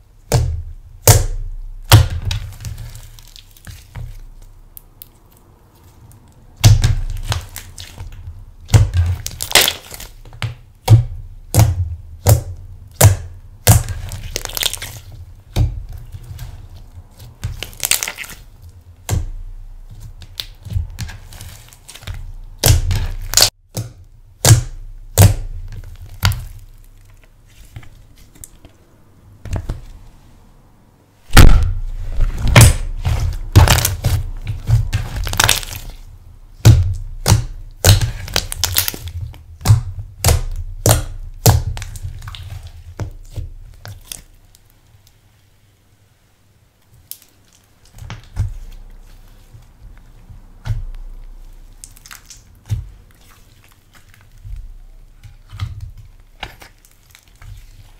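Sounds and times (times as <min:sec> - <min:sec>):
slime popping and crackling: 0:00.3 - 0:28.6, 0:31.3 - 0:44.7, 0:47.0 - 0:57.9.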